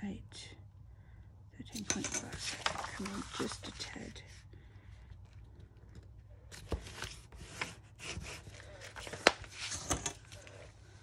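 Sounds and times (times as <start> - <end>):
paper envelope rustling: 2.3 - 4.1, 6.4 - 10.7.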